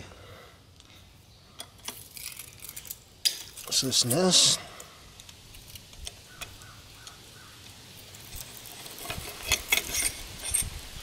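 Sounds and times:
allen wrench clicking on bolts: 0:08.0 - 0:10.8.

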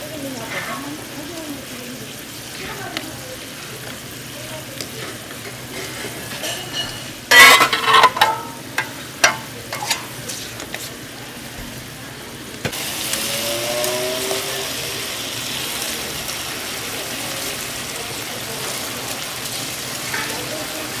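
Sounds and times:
meat patties sizzling: 0:00.0 - 0:21.0
metal spatula scraping griddle: 0:00.4 - 0:01.0, 0:05.0 - 0:10.9.

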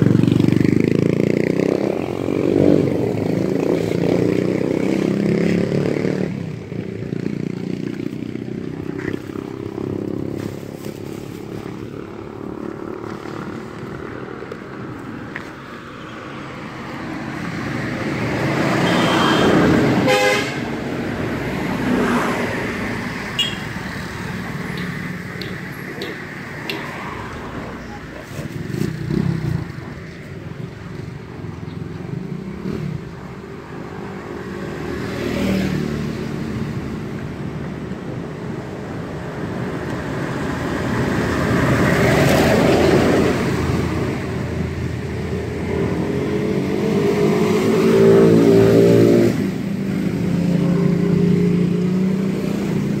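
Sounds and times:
car engines passing: 0:00.0 - 0:53.0
cargo truck passing: 0:16.9 - 0:30.0.

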